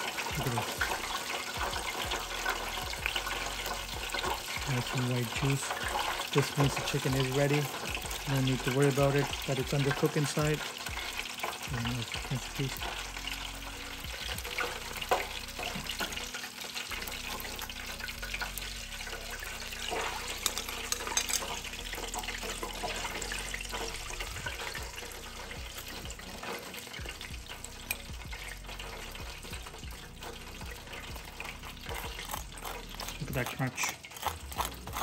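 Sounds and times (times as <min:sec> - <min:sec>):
hot oil crackling and sizzling: 0:00.0 - 0:35.0
metal tongs and baskets clicking: 0:19.8 - 0:23.9.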